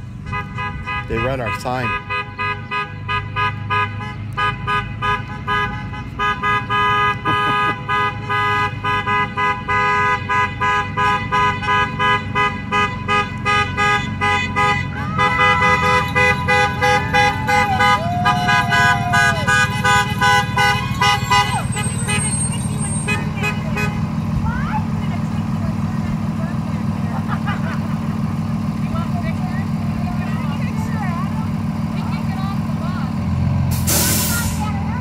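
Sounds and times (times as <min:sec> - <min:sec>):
bus engine rumble: 0:00.0 - 0:35.0
vehicle horns honking: 0:00.2 - 0:24.8.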